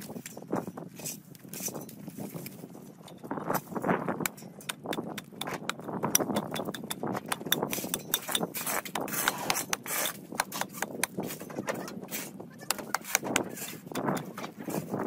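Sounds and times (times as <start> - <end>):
dry stems rustling and snapping: 0.0 - 11.4.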